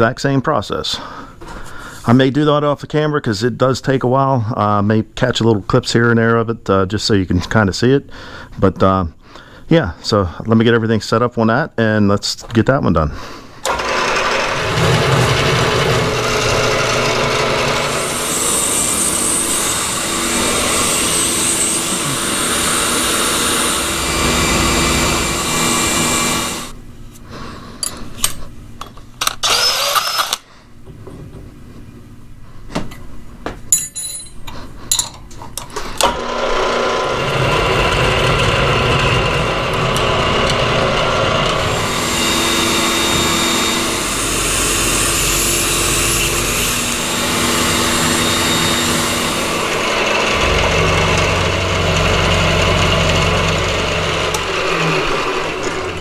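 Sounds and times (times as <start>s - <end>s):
milling machine cutting steel: 13.6s - 26.8s, 29.4s - 30.4s, 36.0s - 56.0s.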